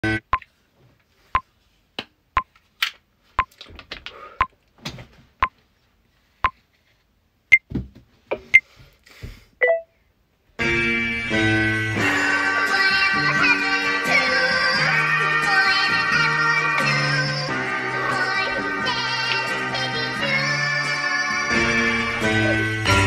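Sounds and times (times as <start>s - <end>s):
countdown timer beeping: 9.6s - 9.9s
music: 10.6s - 23.0s.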